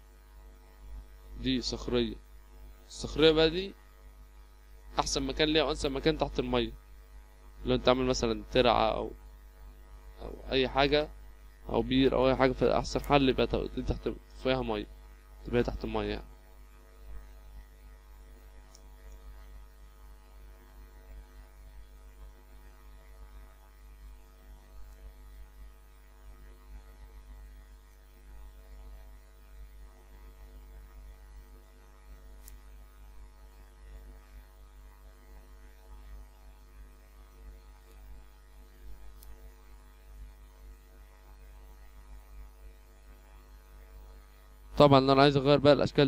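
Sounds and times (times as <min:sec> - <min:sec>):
faint mains hum: 0:00.0 - 0:46.0
faint ticks: 0:18.6 - 0:19.4.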